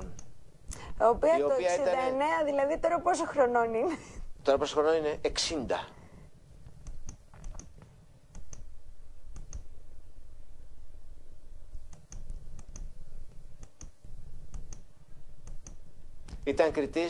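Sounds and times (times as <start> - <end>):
low steady rumble: 0.0 - 17.0
sharp clicks: 6.8 - 8.7, 9.3 - 9.7, 11.9 - 12.9, 13.6 - 16.4.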